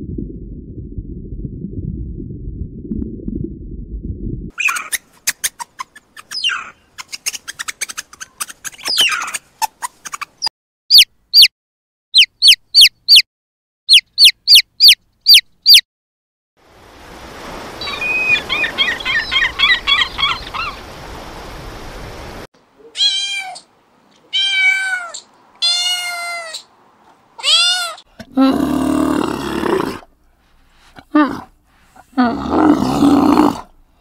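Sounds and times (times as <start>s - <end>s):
low underwater rumbling: 0.0s - 4.5s
meerkat clicks and chirps: 4.6s - 11.5s, 13.9s - 15.8s
chick peeping: 12.2s - 13.2s, 13.9s - 15.8s.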